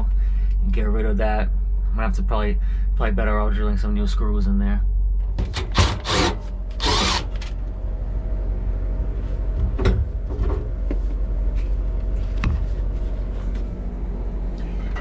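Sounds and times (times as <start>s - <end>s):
steady low hum: 0.0s - 15.0s
cordless drill drilling metal: 5.5s - 7.5s.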